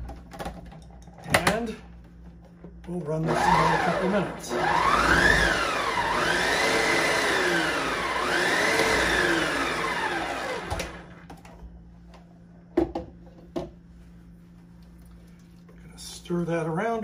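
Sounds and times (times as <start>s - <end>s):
food processor motor whine: 3.2s - 11.3s.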